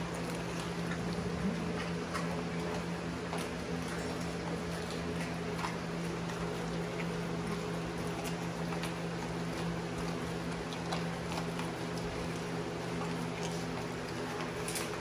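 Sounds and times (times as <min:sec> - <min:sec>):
dog chewing fish crunches: 0:00.0 - 0:15.0
steady low hum: 0:00.0 - 0:15.0.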